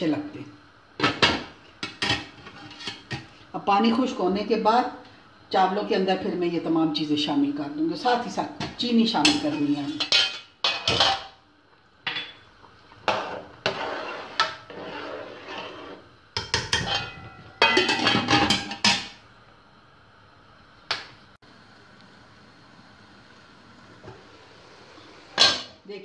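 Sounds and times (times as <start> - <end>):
metal spatula scraping pot: 2.0 - 3.3, 13.1 - 16.1, 16.7 - 18.6.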